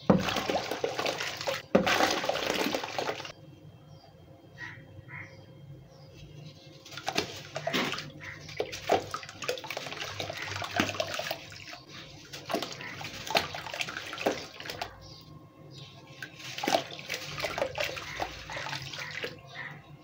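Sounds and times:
water splashing: 0:00.0 - 0:03.3, 0:06.8 - 0:15.1, 0:16.1 - 0:19.7
grains pouring into water: 0:00.1 - 0:03.3.

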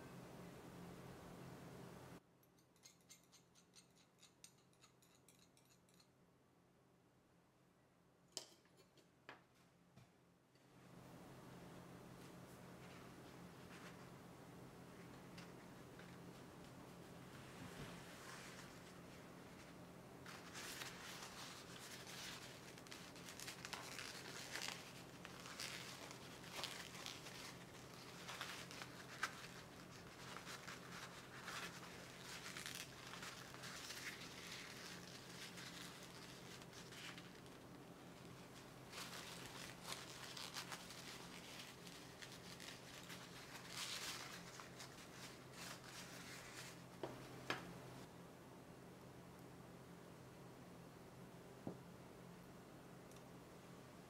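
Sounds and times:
paper towel rustling and crinkling: 0:14.9 - 0:47.4.

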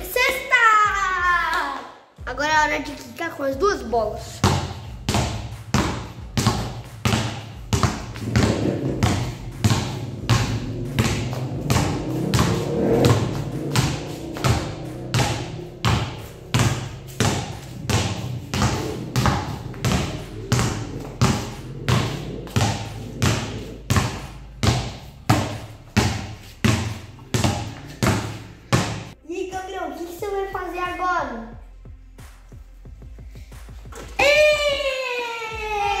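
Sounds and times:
basketballs bouncing on stone tiles: 0:04.3 - 0:29.2.

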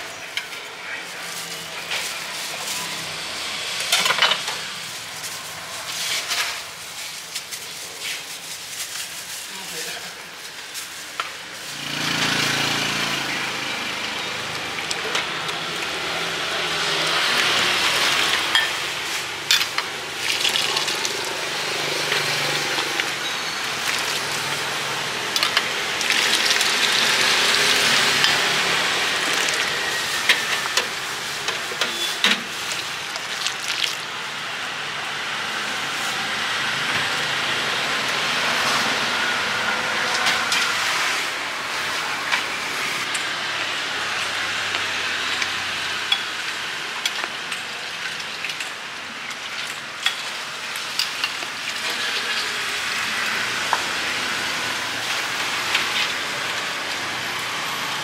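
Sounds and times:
broth boiling and bubbling: 0:13.8 - 0:34.5.

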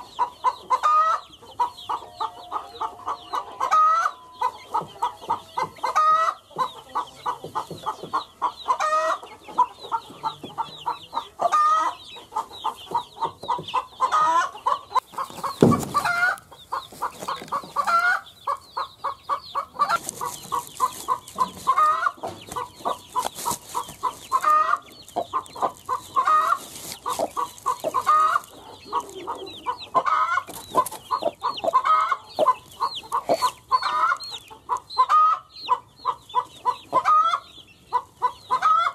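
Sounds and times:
chicks peeping: 0:00.0 - 0:38.9
hen clucking: 0:00.0 - 0:38.9
dull thump: 0:15.2 - 0:16.4.

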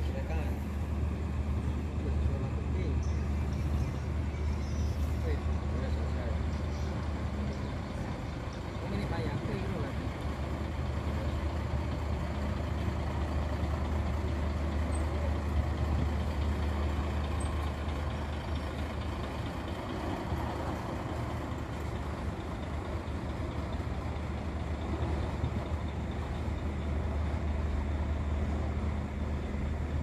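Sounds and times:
bus diesel engine droning: 0:00.0 - 0:30.0.

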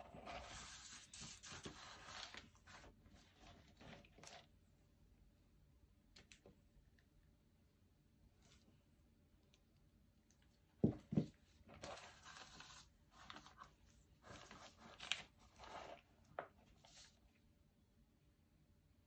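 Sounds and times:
canvas knocking on table: 0:10.8 - 0:11.4.

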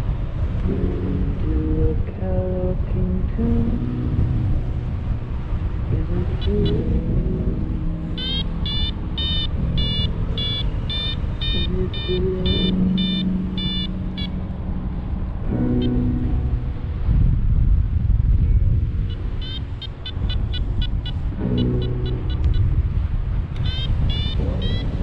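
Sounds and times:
wind rush on microphone: 0:00.0 - 0:25.0
short high electronic beeps: 0:08.2 - 0:14.4, 0:19.4 - 0:22.7, 0:23.6 - 0:25.0.

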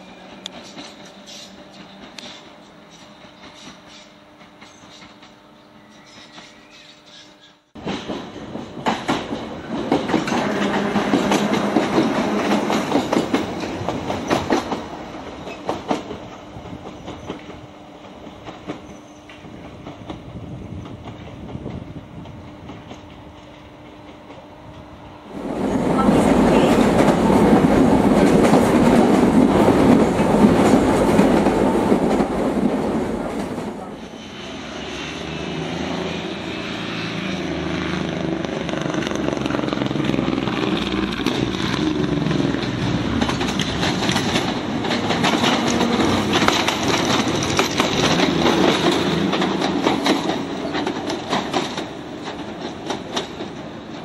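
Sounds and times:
electric train passing: 0:00.0 - 0:54.0
wheels clicking over rail joints: 0:06.0 - 0:24.9, 0:38.2 - 0:54.0.

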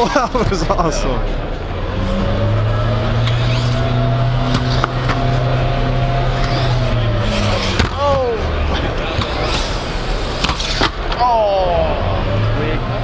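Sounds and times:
busy hall crowd din: 0:00.0 - 0:13.0
electric toy car whine: 0:01.9 - 0:11.6.

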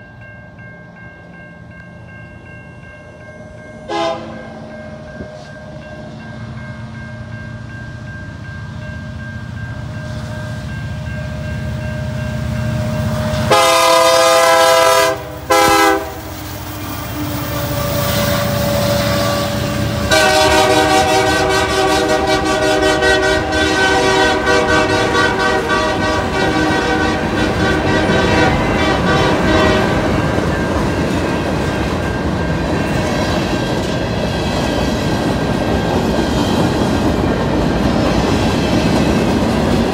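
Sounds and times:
diesel locomotive engine rumble: 0:00.0 - 0:39.9
train air horn: 0:03.9 - 0:04.6, 0:13.3 - 0:30.1
train wheels clacking over rails: 0:13.0 - 0:39.9.

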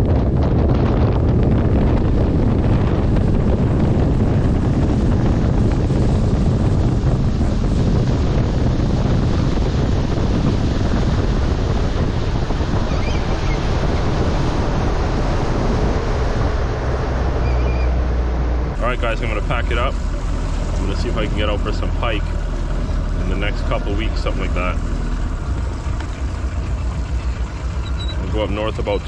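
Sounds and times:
water washing around boat: 0:00.0 - 0:29.0
wind buffeting microphone: 0:00.0 - 0:29.0.

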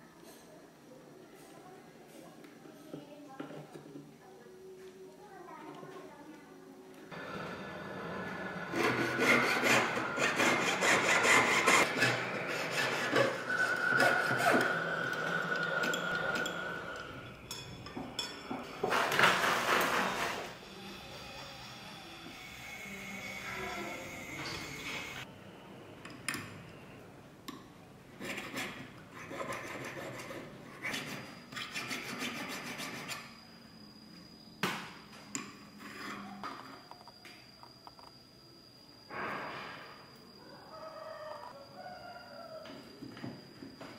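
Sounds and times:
file scraping a metal ring: 0:08.5 - 0:16.9, 0:28.2 - 0:33.5, 0:35.7 - 0:36.4
saw blade cutting metal wire: 0:08.7 - 0:16.8.

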